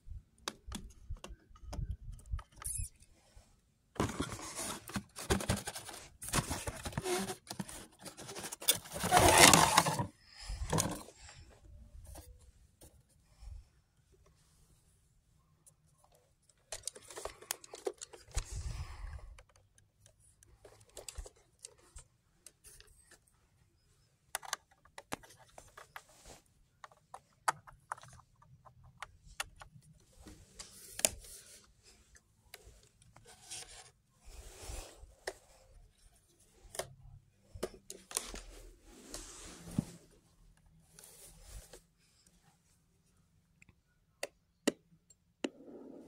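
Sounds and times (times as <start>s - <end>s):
handling plastic case and cardboard box: 3.9s - 11.2s, 16.3s - 23.4s, 24.2s - 31.7s
scraping and rustling: 4.0s - 10.1s.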